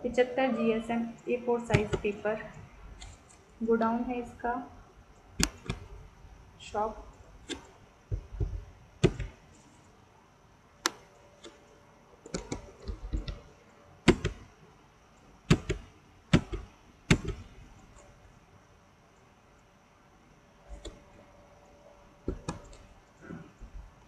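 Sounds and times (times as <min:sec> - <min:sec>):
keyboard key taps: 0:01.7 - 0:02.2, 0:07.5 - 0:09.4, 0:22.3 - 0:22.8.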